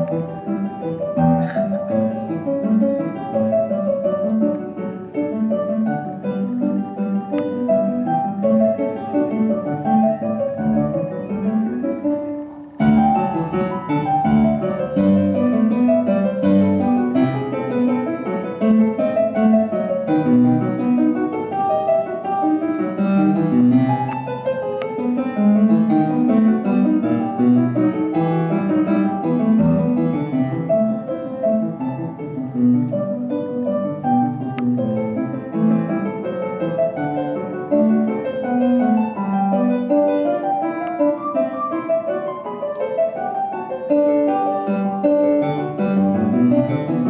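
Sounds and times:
piano music: 0.0 - 47.0.

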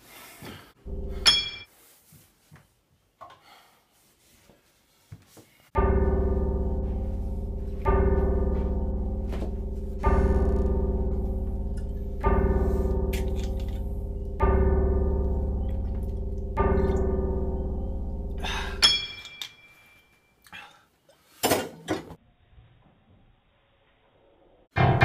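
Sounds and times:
deep ringing note: 0.8 - 1.7, 5.8 - 19.2.

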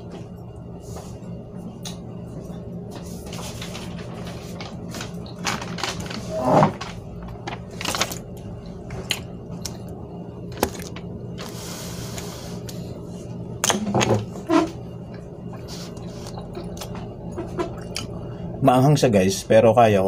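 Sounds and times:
low room hum: 0.0 - 20.0.

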